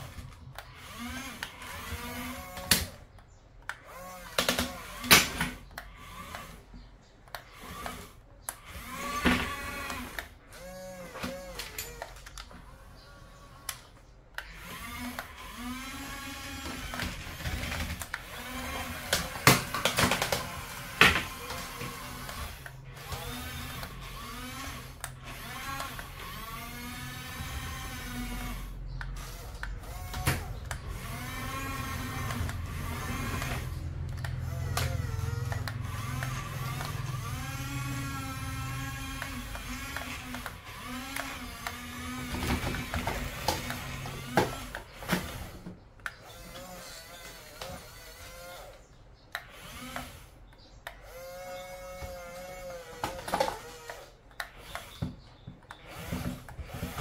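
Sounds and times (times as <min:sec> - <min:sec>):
toy electric motors whining: 0:00.0 - 0:57.0
sharp plastic clacks: 0:16.6 - 0:26.3, 0:28.9 - 0:46.7.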